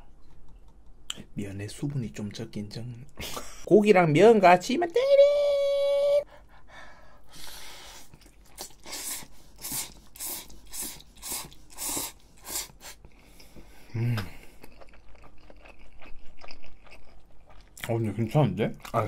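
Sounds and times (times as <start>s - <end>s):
noodles slurped: 7.9s - 13.1s
chewing: 8.0s - 19.0s.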